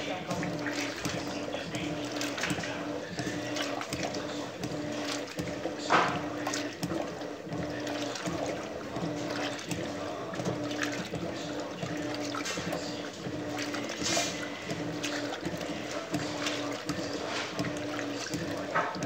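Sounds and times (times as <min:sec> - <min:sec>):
washing machine motor hum: 0:00.0 - 0:19.0
water sloshing and churning: 0:00.0 - 0:19.0.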